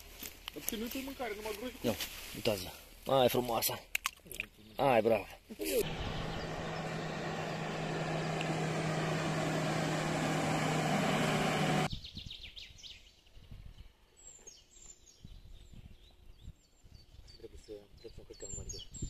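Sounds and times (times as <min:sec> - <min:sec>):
loud rushing noise with hum: 0:05.8 - 0:11.9
small birds chirping: 0:05.8 - 0:13.1.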